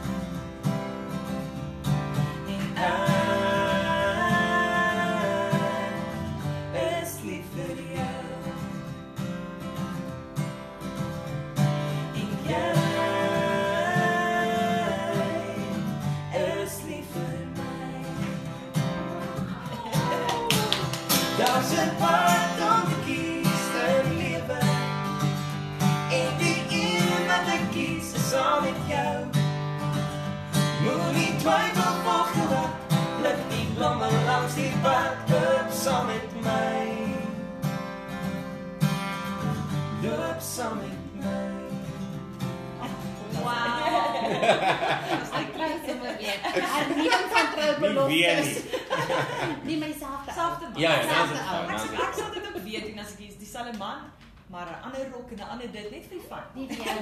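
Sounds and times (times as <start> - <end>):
strummed acoustic guitar: 0.0 - 52.3
man and woman singing duet: 2.3 - 8.8, 11.9 - 25.3, 26.0 - 29.5, 30.6 - 37.5, 39.9 - 42.1, 42.8 - 45.7, 50.7 - 52.3.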